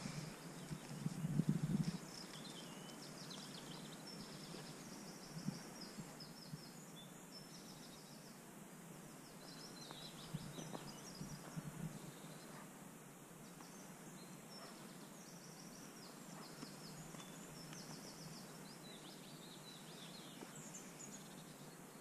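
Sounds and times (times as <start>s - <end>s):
soft low rustle: 0.0s - 6.2s
small birds chirping: 0.0s - 8.4s, 9.0s - 22.0s
faint outdoor noise: 0.0s - 22.0s.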